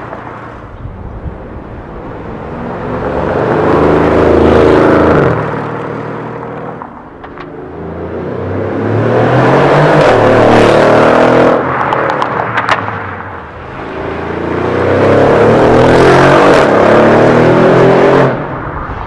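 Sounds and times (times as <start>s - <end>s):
car engine accelerating hard: 2.0s - 6.7s, 7.4s - 12.4s, 13.6s - 18.7s.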